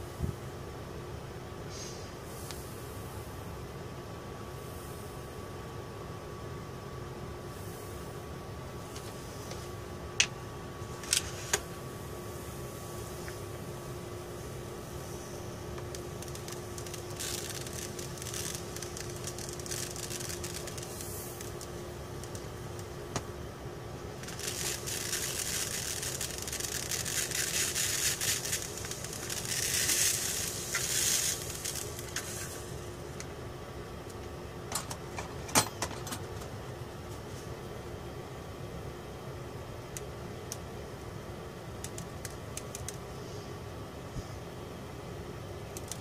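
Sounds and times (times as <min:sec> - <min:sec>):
solder balls rattling on metal: 0:15.8 - 0:22.4, 0:24.2 - 0:32.7.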